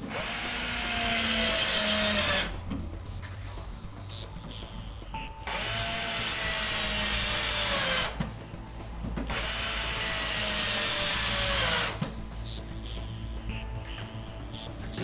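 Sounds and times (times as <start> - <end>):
cordless drill whine: 0.0 - 2.7, 5.4 - 8.4, 9.2 - 12.2.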